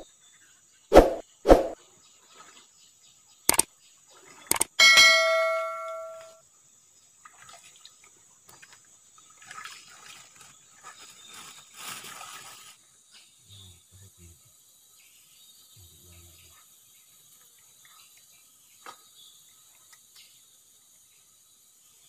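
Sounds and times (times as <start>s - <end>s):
bell ding: 4.8s - 6.4s
faint rustling and handling: 10.1s - 12.8s.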